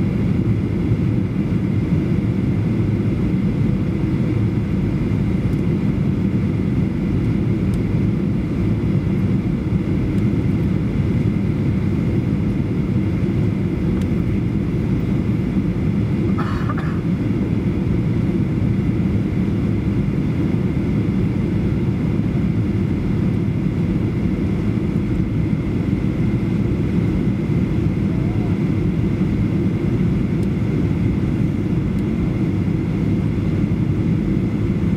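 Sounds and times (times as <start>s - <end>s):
aircraft engine drone: 0.0s - 34.9s
cabin airflow: 7.1s - 17.5s, 22.6s - 34.9s.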